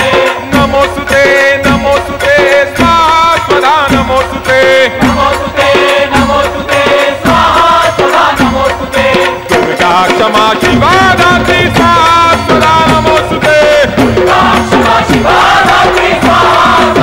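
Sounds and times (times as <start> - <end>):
devotional chant music: 0.0 - 17.0
rhythmic percussion: 0.0 - 17.0.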